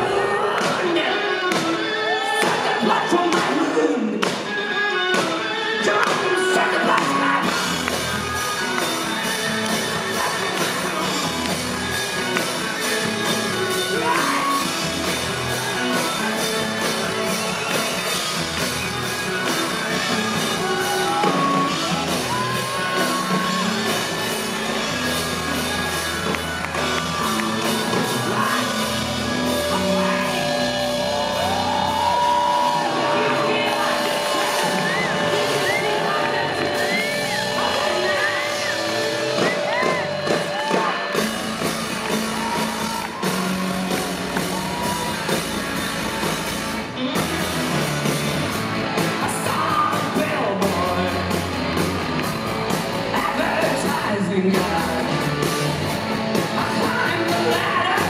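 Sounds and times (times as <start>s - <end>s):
live rock band: 0.0s - 58.0s
man singing shouted lines: 28.2s - 31.3s, 32.6s - 41.0s.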